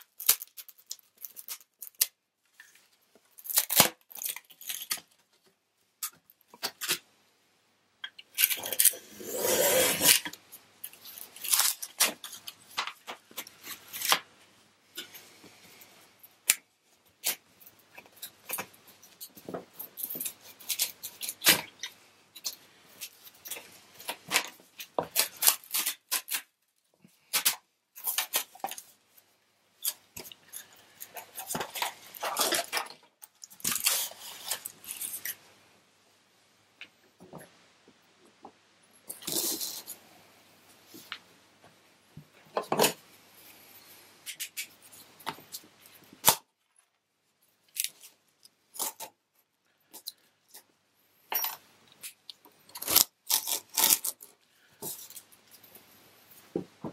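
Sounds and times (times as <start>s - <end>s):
laminate tearing: 3.4s - 5.1s, 8.4s - 10.4s, 24.0s - 26.5s, 52.7s - 54.3s.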